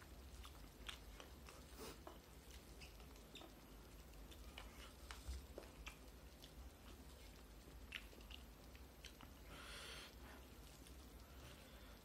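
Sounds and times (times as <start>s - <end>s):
mouth-closed chewing: 0.0s - 9.7s.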